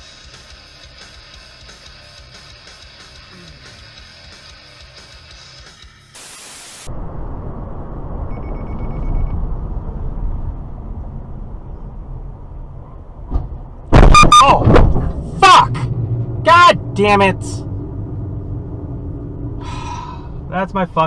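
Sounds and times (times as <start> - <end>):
static hiss: 6.2 - 6.9
car crash: 6.9 - 15.4
car road noise: 6.9 - 21.0.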